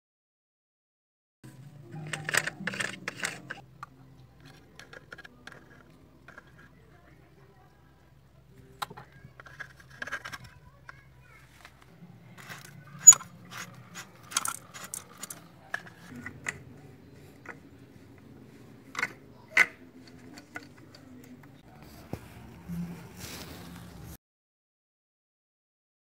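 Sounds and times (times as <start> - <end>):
plastic and brass fittings clicking: 12.4 - 16.6.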